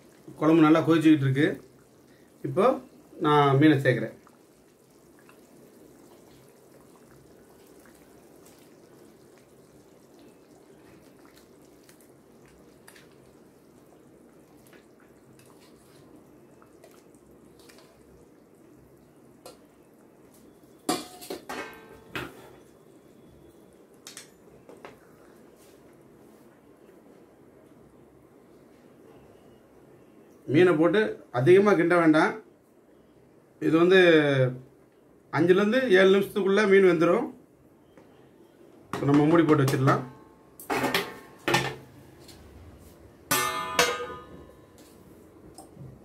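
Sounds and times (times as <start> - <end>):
faint drips: 0.0 - 20.9, 22.0 - 31.3
curry bubbling at a boil: 0.0 - 27.0
steel bowl clattering on pan: 20.9 - 22.6, 39.0 - 41.9, 43.3 - 44.9.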